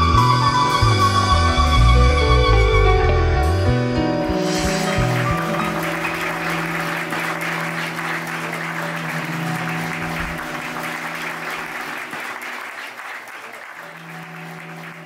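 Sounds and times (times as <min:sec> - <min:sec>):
audience applauding: 0:04.4 - 0:15.0.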